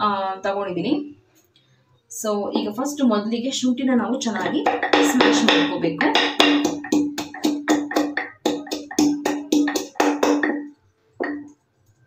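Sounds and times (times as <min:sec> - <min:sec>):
pestle crushing ginger: 0:04.3 - 0:11.5.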